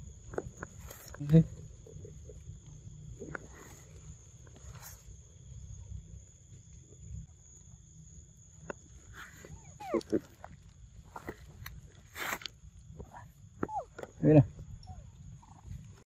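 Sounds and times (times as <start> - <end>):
monkey squealing: 9.4 - 10.3, 13.6 - 14.0.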